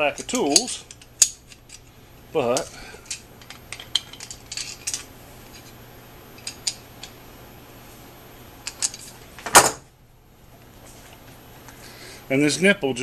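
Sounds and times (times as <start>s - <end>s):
metal fittings clinking: 0.1s - 1.9s, 2.5s - 5.7s, 8.6s - 9.2s.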